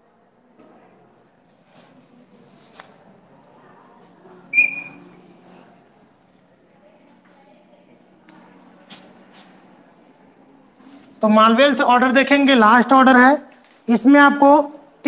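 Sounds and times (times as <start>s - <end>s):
chalk tap with squeak: 4.5s - 5.0s.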